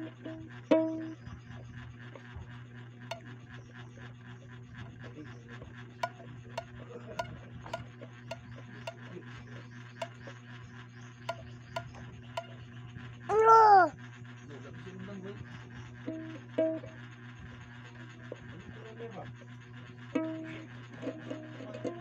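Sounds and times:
toy ukulele plucks: 0.0s - 1.1s, 6.0s - 9.1s, 20.2s - 22.0s
steady low hum: 0.0s - 22.0s
voice-like call: 13.3s - 14.0s.

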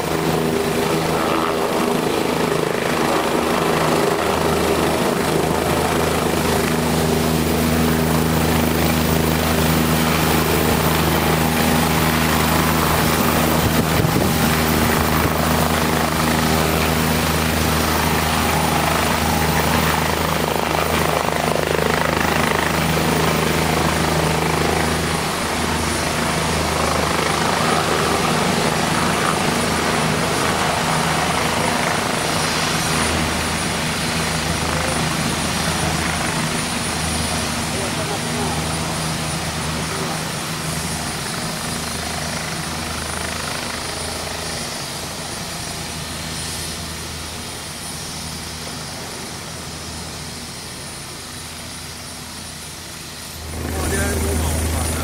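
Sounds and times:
helicopter hovering: 0.0s - 55.0s.

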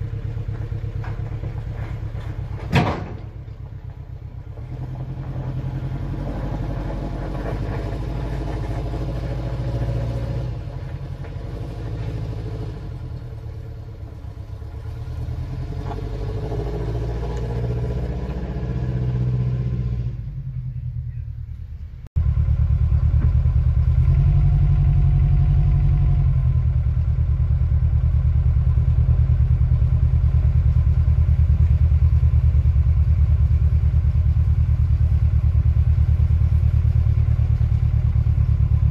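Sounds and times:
truck engine running: 0.0s - 38.9s.

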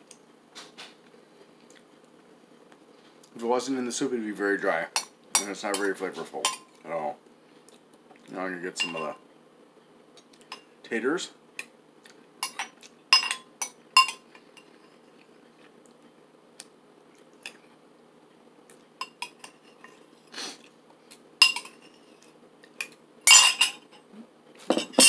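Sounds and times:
metal spoon clinking against dish: 8.8s - 9.2s, 12.4s - 14.2s, 21.4s - 21.8s, 23.3s - 23.8s.

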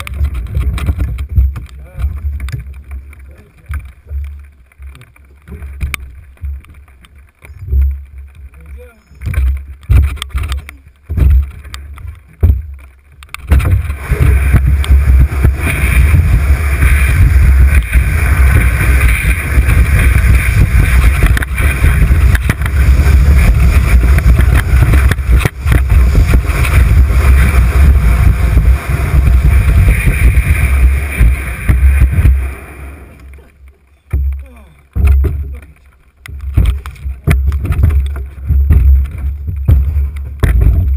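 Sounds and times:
canoe hull scraping down snow: 11.0s - 33.5s
knocks: 34.1s - 35.7s, 36.3s - 40.9s.

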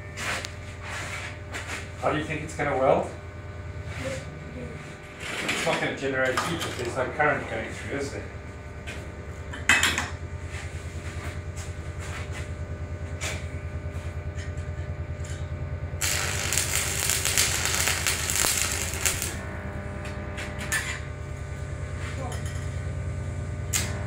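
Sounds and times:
pulsing hum: 0.0s - 24.0s
welding arc crackling: 15.1s - 24.0s.

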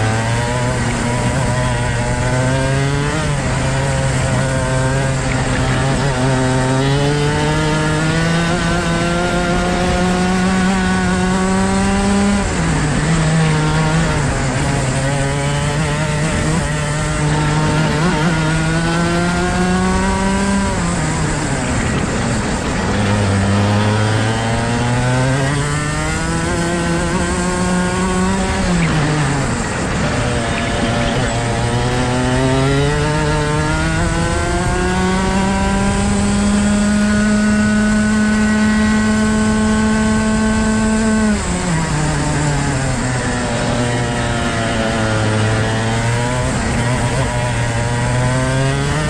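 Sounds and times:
kart engine revving: 0.0s - 49.0s.

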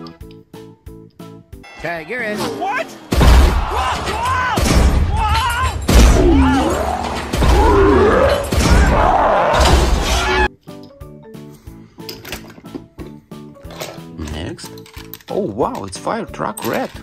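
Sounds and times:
character shouting: 3.6s - 10.5s
deep thuds and crashes: 5.8s - 6.5s.

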